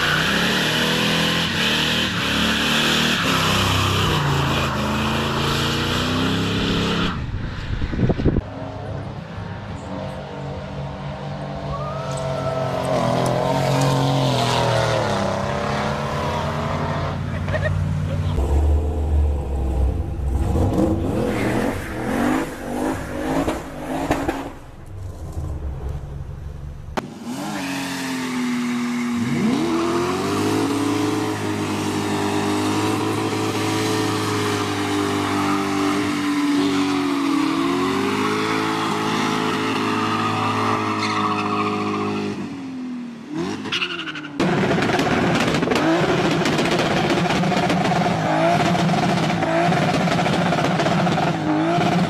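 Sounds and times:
car engines revving: 0:00.0 - 0:52.0
tyre squeal: 0:39.6 - 0:42.3.

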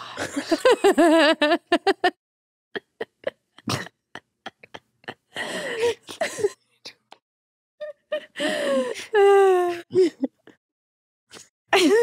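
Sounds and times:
person laughing hard: 0:02.8 - 0:06.6, 0:11.8 - 0:12.0.

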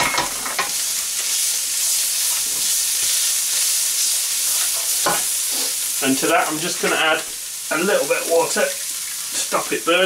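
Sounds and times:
chilli sizzling in hot oil: 0:00.0 - 0:10.0.

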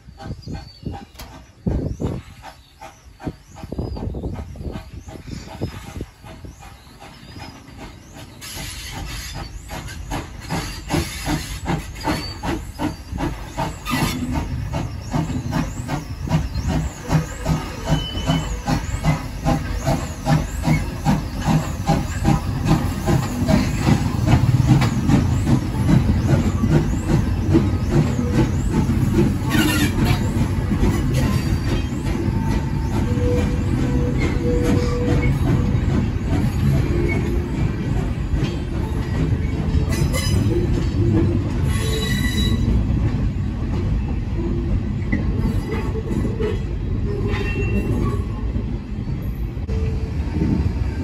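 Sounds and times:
steam locomotive chuffing: 0:00.0 - 0:51.0
steam hiss: 0:00.1 - 0:37.6.

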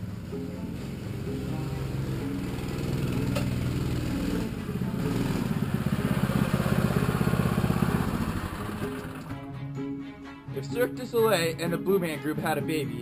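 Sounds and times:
small motorbike engine running: 0:00.0 - 0:09.3.

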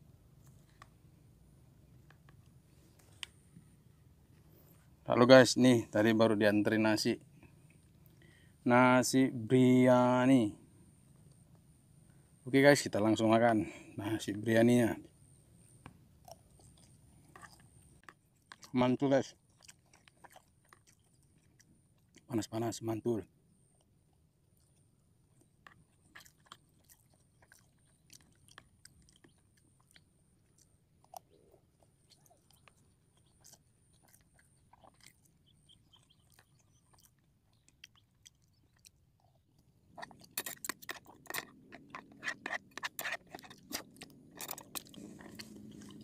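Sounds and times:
person chewing: 0:15.6 - 0:22.3, 0:23.6 - 0:46.0.

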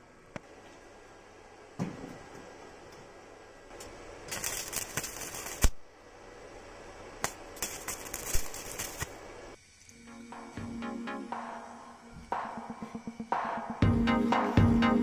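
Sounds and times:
welding arc crackling: 0:03.7 - 0:05.9, 0:07.2 - 0:10.0.

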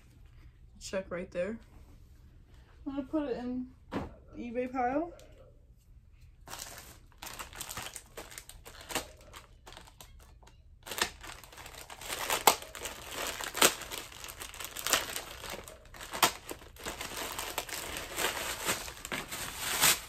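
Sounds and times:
plastic bag crinkling: 0:06.4 - 0:20.0.

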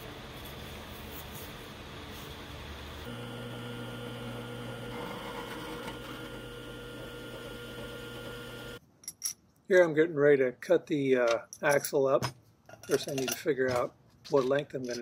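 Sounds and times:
drill press motor humming: 0:03.0 - 0:08.8.

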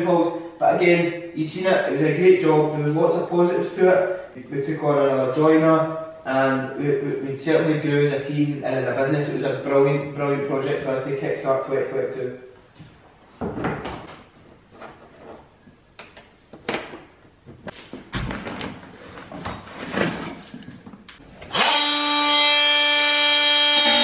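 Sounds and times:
oscillating multi-tool buzzing: 0:21.5 - 0:24.0.

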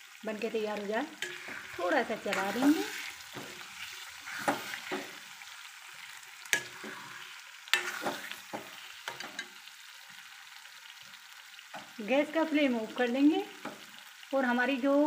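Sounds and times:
gravy sizzling: 0:00.0 - 0:15.0
metal spoon scraping a pan: 0:01.1 - 0:09.6.

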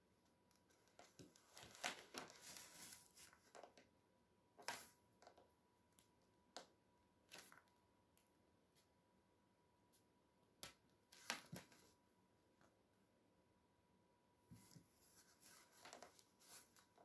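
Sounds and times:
hands shaping plasticine: 0:00.0 - 0:09.0, 0:14.4 - 0:17.0.

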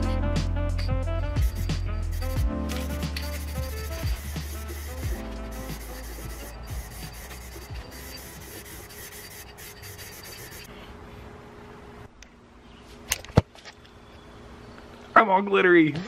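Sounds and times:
aerosol spray can hissing: 0:01.4 - 0:10.7.

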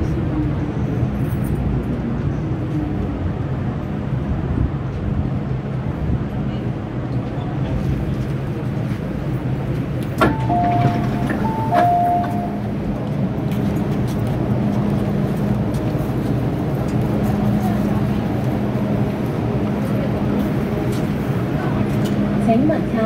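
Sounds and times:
standing train hum: 0:00.0 - 0:23.0
two-note falling door chime: 0:10.2 - 0:12.6.

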